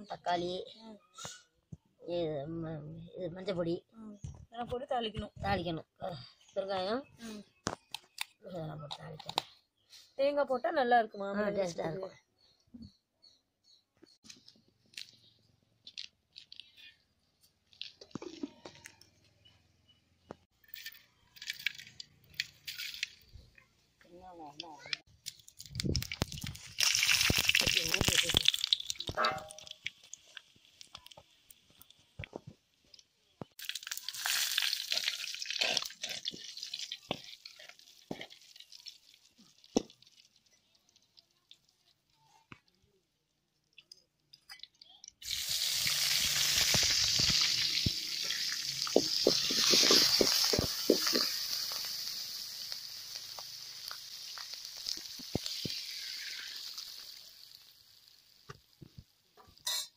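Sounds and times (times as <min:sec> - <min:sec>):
spices sizzling in hot oil: 0:20.6 - 0:23.4, 0:24.4 - 0:32.2, 0:32.9 - 0:42.5, 0:44.8 - 0:59.9.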